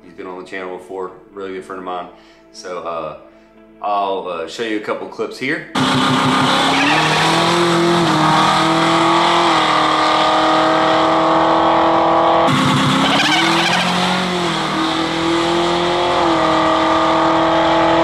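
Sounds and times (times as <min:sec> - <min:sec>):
race car engine at full throttle: 0:05.8 - 0:18.0.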